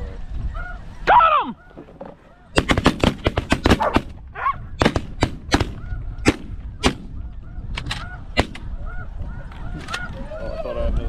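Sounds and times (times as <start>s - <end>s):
geese honking: 0.4s - 2.6s, 5.7s - 11.0s
shotgun blasts: 2.6s - 4.2s, 4.8s - 7.2s, 8.3s - 8.7s.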